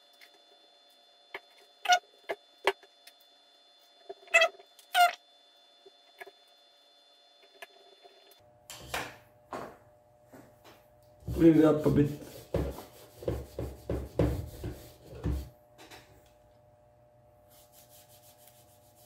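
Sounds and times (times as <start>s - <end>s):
short squeaky sounds: 1.8s - 2.0s, 4.2s - 5.2s.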